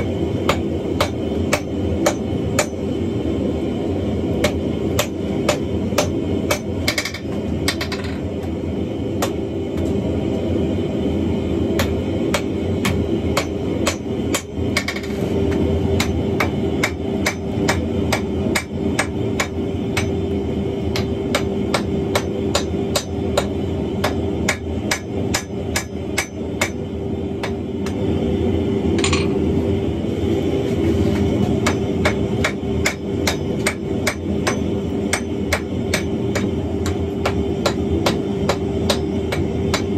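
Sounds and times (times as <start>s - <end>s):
hammer striking iron on anvil: 0.0s - 2.8s, 4.4s - 8.2s, 11.8s - 15.1s, 16.0s - 20.2s, 20.9s - 26.8s, 31.6s - 39.9s
continuous rushing noise: 0.0s - 39.9s.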